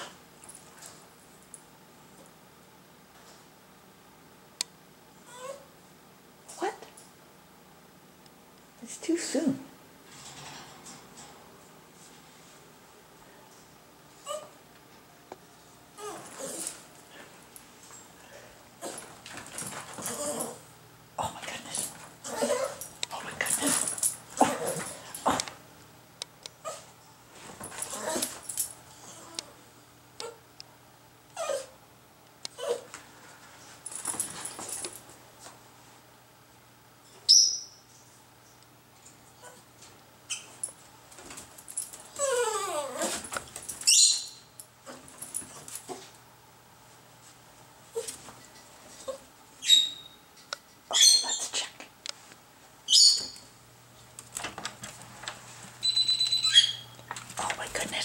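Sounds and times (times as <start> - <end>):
dog whining: 5.2 - 5.7, 14.2 - 14.6, 16.0 - 16.8, 19.9 - 20.6, 22.2 - 22.9, 27.8 - 29.6, 31.4 - 31.8, 32.5 - 32.9, 42.1 - 45.0, 55.8 - 56.9
dog whining in high cries: 31.4 - 31.8, 42.1 - 43.2, 55.8 - 56.8.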